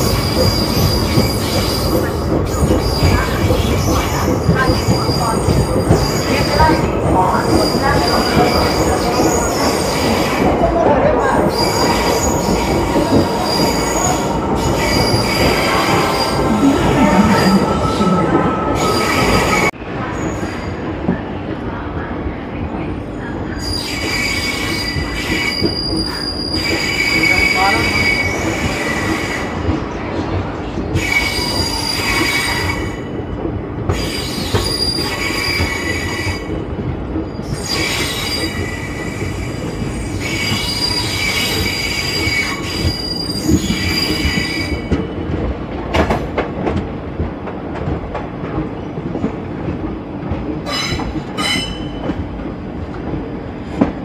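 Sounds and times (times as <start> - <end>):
wheels squealing against rails: 0.0 - 20.8, 23.5 - 29.6, 30.8 - 45.4, 50.6 - 52.2
running train rumble: 0.0 - 54.0.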